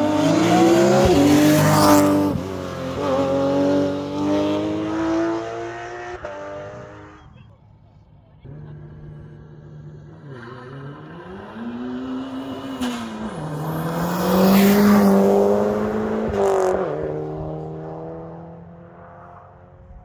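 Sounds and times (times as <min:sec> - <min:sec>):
race car accelerating and passing: 0:00.0 - 0:07.4, 0:08.4 - 0:20.0.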